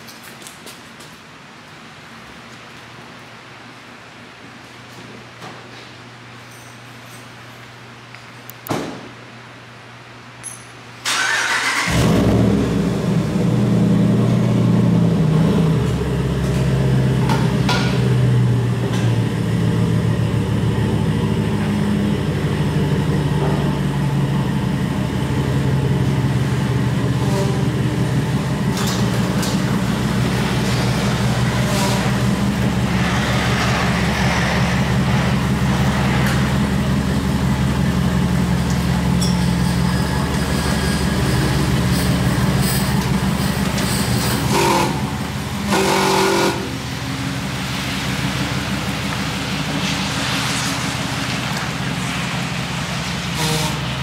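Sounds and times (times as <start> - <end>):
pickup engine starting and idling: 11.0 - 45.8.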